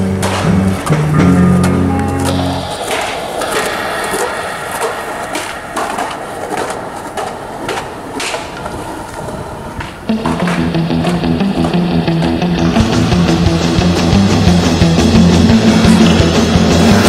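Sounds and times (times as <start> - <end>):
loud guitar music: 0.0 - 3.1, 10.1 - 17.0
skateboard clacking on ground: 0.0 - 3.8, 4.8 - 12.4
skateboard wheels rolling on concrete: 0.0 - 17.0.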